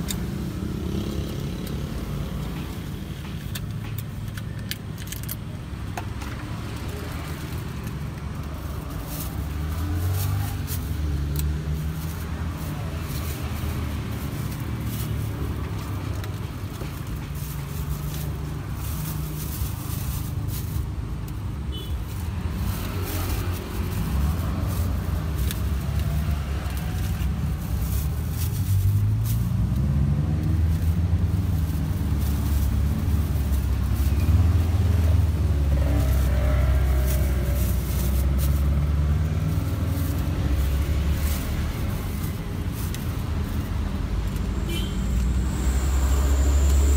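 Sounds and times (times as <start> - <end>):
plastic lids and bags crinkling: 0.0 - 44.6
vehicles passing close by: 0.0 - 46.9.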